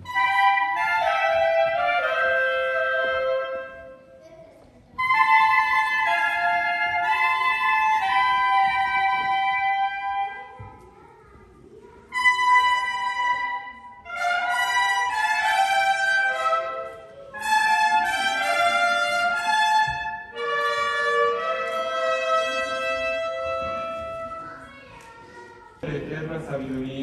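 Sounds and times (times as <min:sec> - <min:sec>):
brass band playing slow tune: 0:00.0 - 0:04.0, 0:12.2 - 0:24.2.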